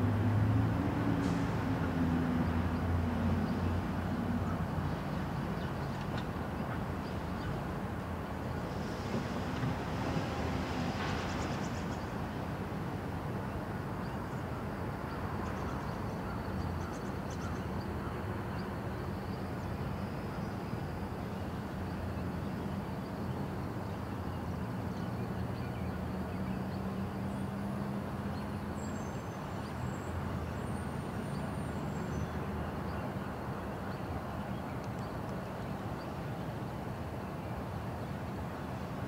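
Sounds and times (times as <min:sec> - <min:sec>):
diesel locomotive engines droning: 0:00.0 - 0:16.6.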